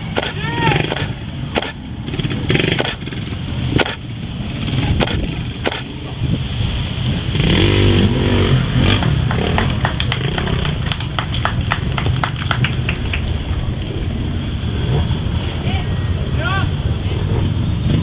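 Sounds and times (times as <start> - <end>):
sharp knocks: 0.0 - 5.9
motorcycle engine revving: 0.0 - 18.0.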